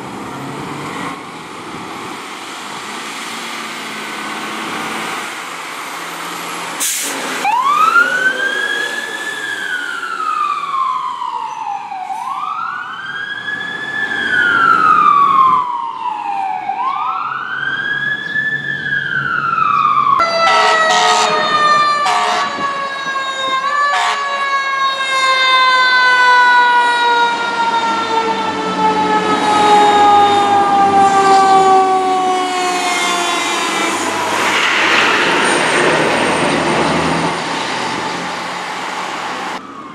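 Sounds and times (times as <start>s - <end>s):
siren wailing down slowly: 7.3s - 39.9s
loud horn blasts: 20.2s - 22.7s, 23.9s - 24.5s.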